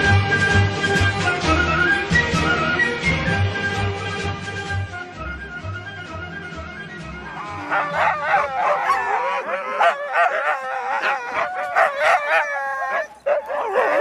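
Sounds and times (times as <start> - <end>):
sled dogs barking and yelping: 7.1 - 14.0.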